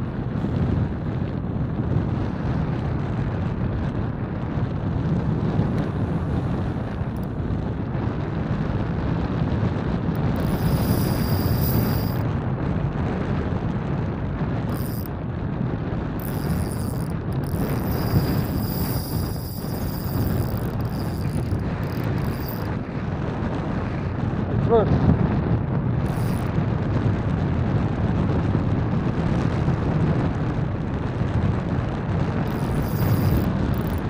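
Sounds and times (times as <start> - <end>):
wind buffeting microphone: 0.0 - 34.0
thin high whine: 10.2 - 12.2, 14.7 - 15.1, 16.2 - 22.8, 26.1 - 26.6, 32.4 - 34.0.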